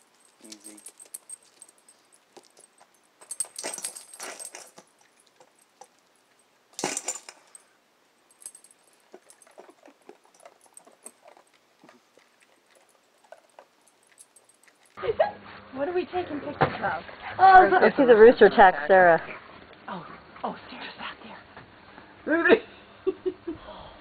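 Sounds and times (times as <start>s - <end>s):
kibble rattling in metal bowl: 0.0s - 7.7s, 8.3s - 15.0s.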